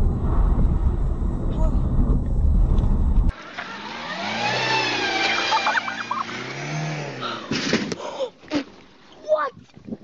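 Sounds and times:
car engine revving: 0:03.3 - 0:07.6.

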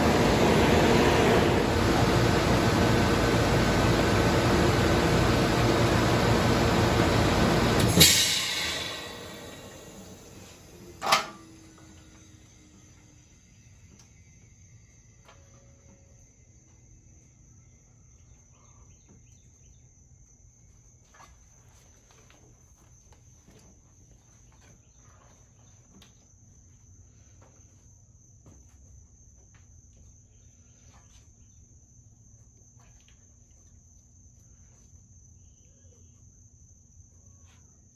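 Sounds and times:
low hum: 0:00.0 - 0:13.4
high-pitched whine: 0:00.0 - 0:13.8.

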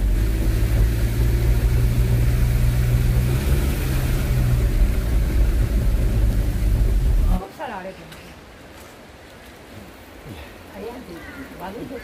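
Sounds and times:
car engine and tyres humming: 0:00.0 - 0:07.4.

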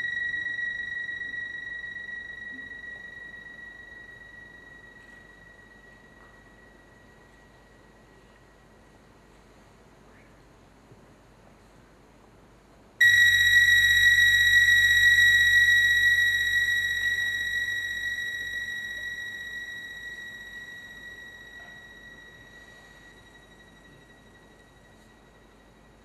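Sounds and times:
high electronic tone: 0:00.0 - 0:05.6, 0:13.0 - 0:24.7
low hum: 0:00.0 - 0:08.4, 0:13.0 - 0:26.0.

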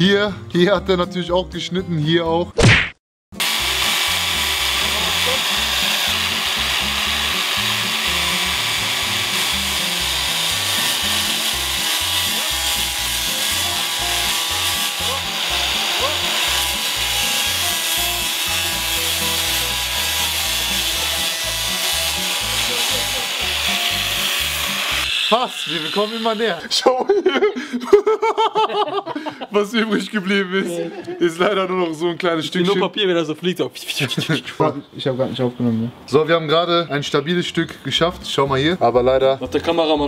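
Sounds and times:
angle grinder cutting watermelon: 0:03.4 - 0:26.7.

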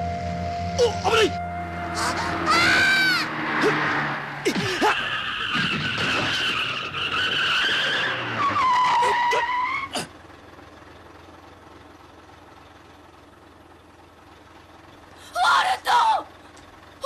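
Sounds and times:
cartoon tyres screeching: 0:00.7 - 0:10.3.

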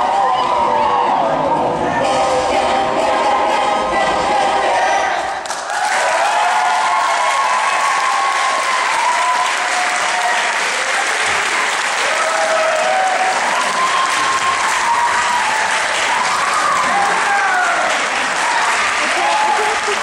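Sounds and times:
crowd shouts and whoops: 0:00.0 - 0:01.6, 0:05.6 - 0:20.0
audience applauding: 0:05.4 - 0:20.0.

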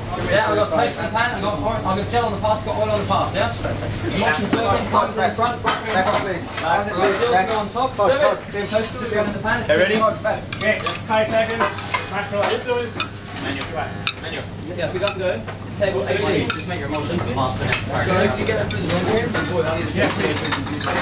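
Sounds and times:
pans sizzling: 0:05.4 - 0:21.0.

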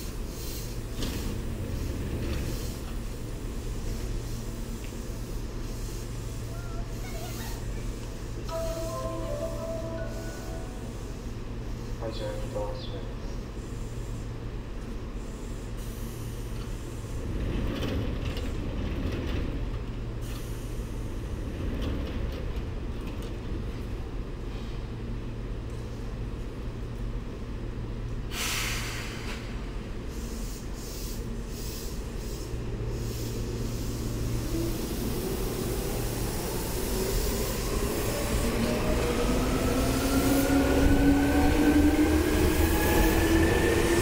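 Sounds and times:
electric train humming: 0:00.2 - 0:15.4, 0:31.3 - 0:44.0
compressed air hiss: 0:28.3 - 0:35.6.

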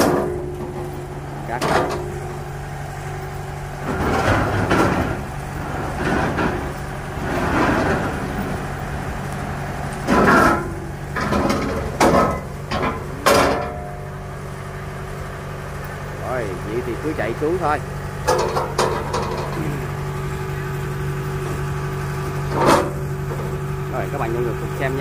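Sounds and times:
engine hum: 0:00.0 - 0:25.0
metal ramps scraping and clattering: 0:03.8 - 0:14.0, 0:17.6 - 0:20.0, 0:22.4 - 0:23.6
ringing metal clangs: 0:11.4 - 0:14.1.

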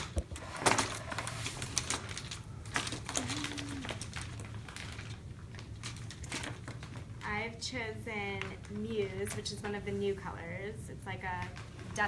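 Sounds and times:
packaging clicks and rustles: 0:00.0 - 0:07.3.

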